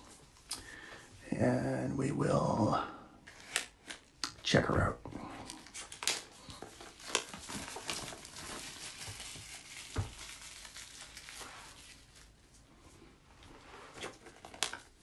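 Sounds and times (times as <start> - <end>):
plastic wrap crinkling: 5.3 - 12.7, 13.9 - 15.0.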